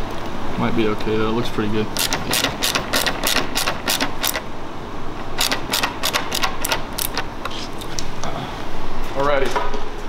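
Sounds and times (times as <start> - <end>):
ratcheting screwdriver clicking: 2.0 - 4.4, 5.4 - 7.3.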